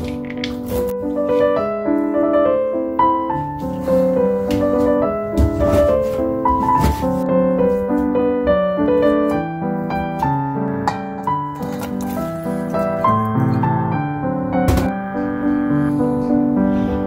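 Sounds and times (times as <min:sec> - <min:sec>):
piano waltz music: 0:00.0 - 0:17.0.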